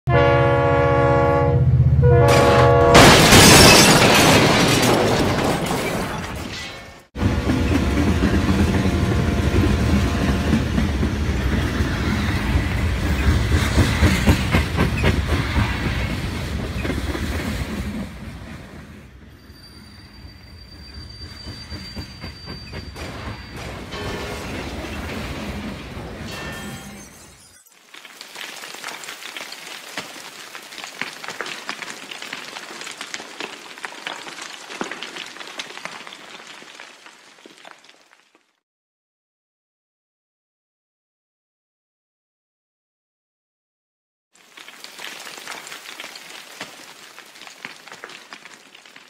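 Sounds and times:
train horn: 0.1s - 3.0s
train wheels clickety-clack: 7.2s - 19.0s, 21.0s - 25.7s.

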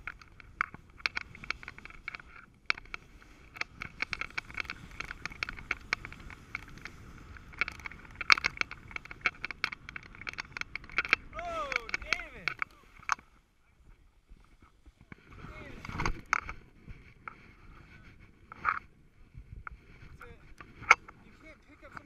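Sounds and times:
sharp clicks and knocks: 0.0s - 13.2s
snowboard scraping over snow: 3.0s - 9.9s, 14.2s - 21.6s.

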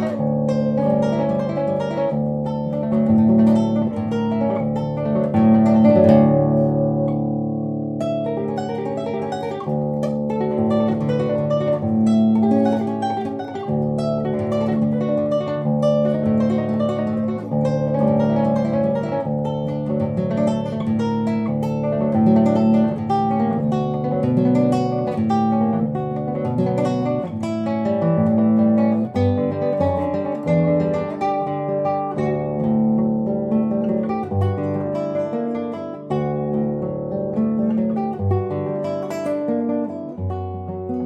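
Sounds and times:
nylon-string guitar fingerstyle: 0.0s - 41.0s.

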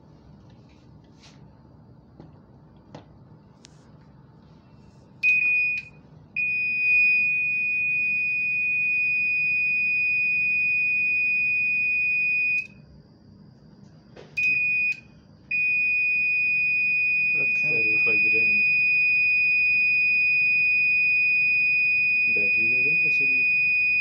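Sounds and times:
beeper click: 14.4s - 15.0s
electronic beeper tone: 15.6s - 24.0s.

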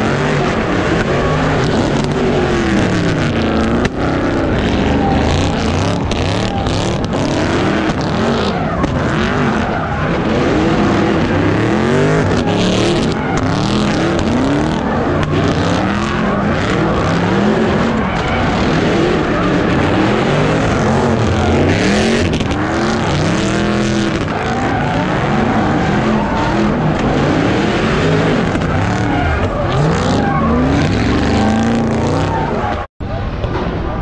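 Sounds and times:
car engines revving: 0.0s - 34.0s
tyres skidding: 0.0s - 34.0s.

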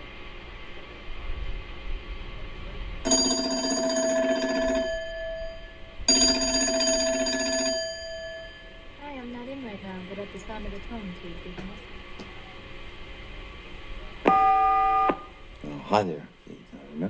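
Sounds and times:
telephone ringing: 3.1s - 8.9s, 14.3s - 15.3s.

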